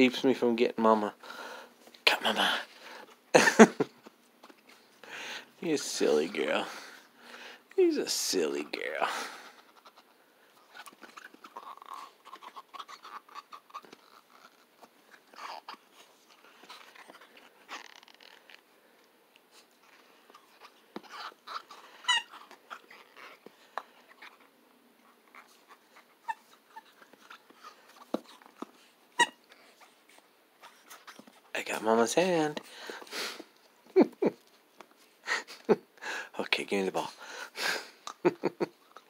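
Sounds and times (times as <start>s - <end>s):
puppy chewing rubber ball: 9.4s - 31.5s.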